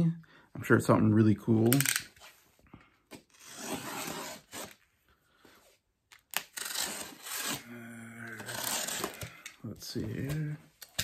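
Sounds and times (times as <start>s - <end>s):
cardboard scraping and tearing: 3.3s - 4.8s, 6.4s - 7.7s, 8.4s - 9.2s.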